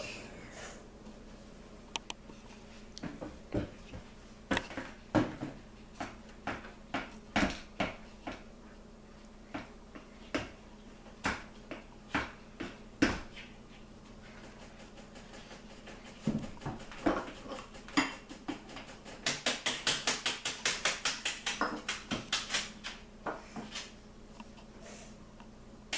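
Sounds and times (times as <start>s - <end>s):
mixer beaters knocking against bowl: 14.4s - 23.0s.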